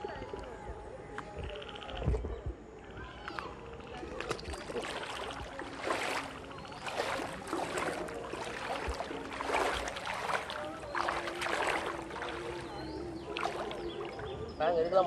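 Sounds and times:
footsteps splashing in water: 3.9 - 14.4
water rushing: 4.0 - 14.5.

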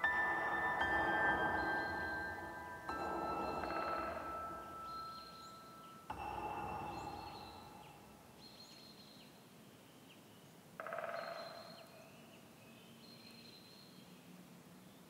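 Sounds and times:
high bird-like chirps: 0.0 - 8.7.

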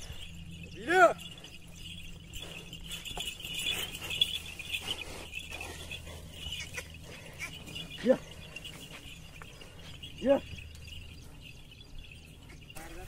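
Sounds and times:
hooves and tines scuffing soil: 0.0 - 13.0
steady high chirring: 0.0 - 13.0.

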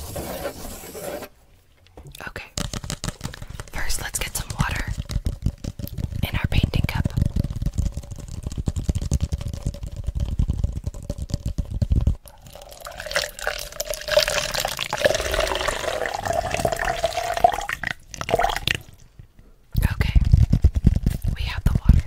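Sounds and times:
plastic cup handled: 2.5 - 18.9
water pouring into plastic cup: 12.2 - 19.0.

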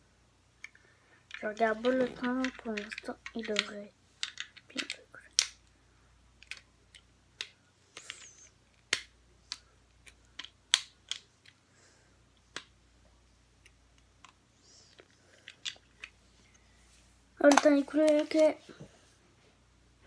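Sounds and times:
plastic bricks clicking: 0.6 - 5.6, 6.4 - 11.6, 13.6 - 16.2.

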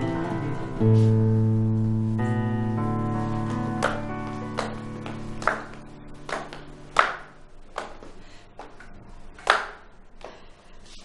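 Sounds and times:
music chord: 0.0 - 7.6.

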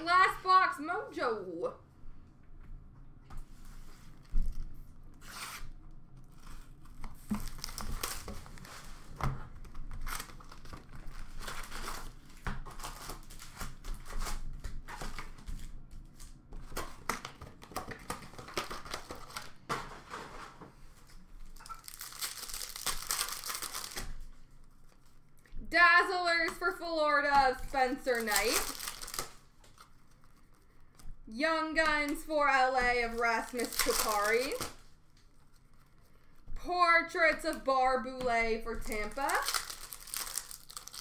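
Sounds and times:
plastic wrap tearing: 4.4 - 19.6, 21.4 - 25.3, 27.5 - 30.6, 32.9 - 35.9, 38.8 - 41.0
foil packs crinkling: 6.3 - 20.5, 21.4 - 26.0, 27.4 - 30.9, 32.0 - 36.4, 38.6 - 41.0.

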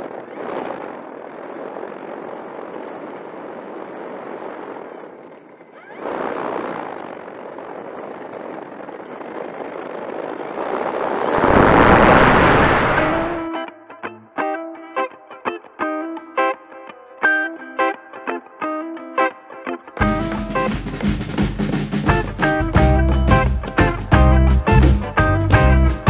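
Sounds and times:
wind rushing over microphone: 0.0 - 13.5.

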